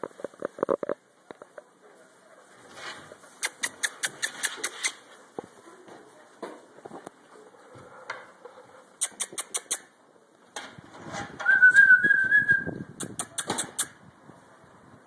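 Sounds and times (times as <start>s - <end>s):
sharp clicks: 3.4s - 5.0s, 9.0s - 9.9s, 13.0s - 14.0s
high whistle: 11.4s - 12.8s.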